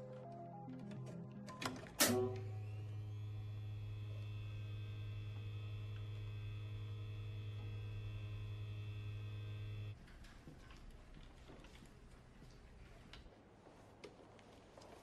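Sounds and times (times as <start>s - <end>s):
charger electrical hum and whine: 2.1s - 10.0s.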